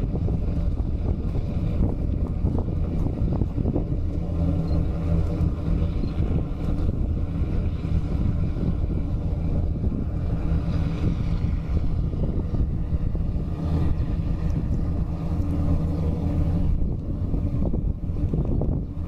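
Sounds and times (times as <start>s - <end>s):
distant fogger engine drone: 0.0s - 19.0s
wind noise on microphone: 0.0s - 19.0s.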